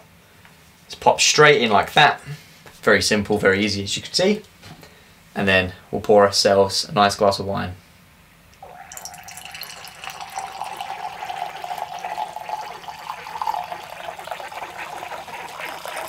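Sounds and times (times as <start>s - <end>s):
wine pouring into a glass: 8.6s - 16.0s.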